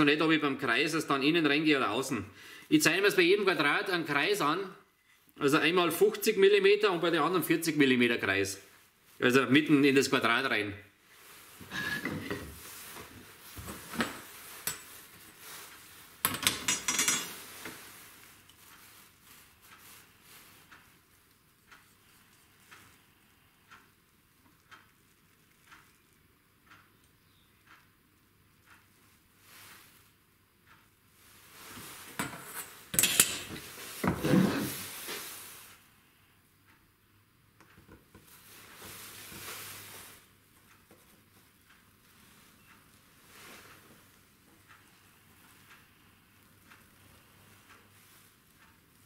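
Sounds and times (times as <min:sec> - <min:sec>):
metal tools clattering on wood: 0:16.3 - 0:17.4, 0:32.2 - 0:34.7
metal tools clattering: 0:16.3 - 0:17.5
board sliding over bench: 0:34.0 - 0:34.9.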